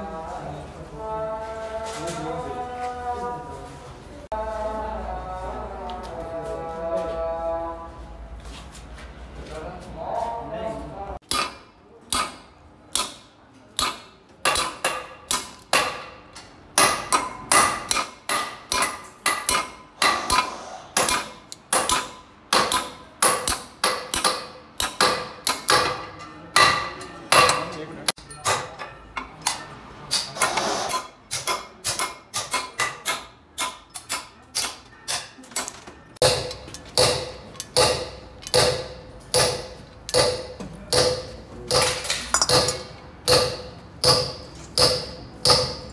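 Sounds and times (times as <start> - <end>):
hammer striking steel tools: 11.2 - 45.9.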